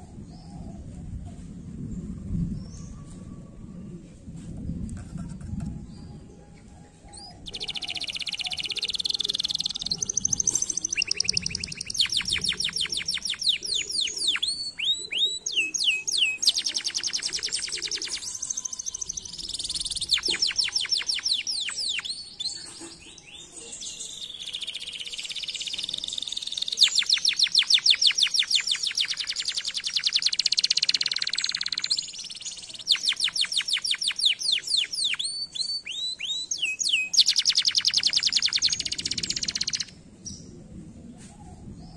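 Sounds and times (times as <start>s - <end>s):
canary singing trills: 7.1s - 40.4s.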